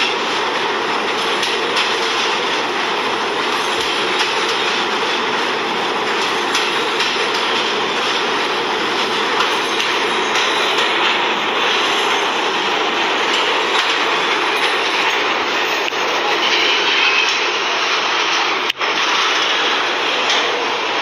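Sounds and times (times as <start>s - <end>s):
subway train wheels on track: 0.0s - 21.0s.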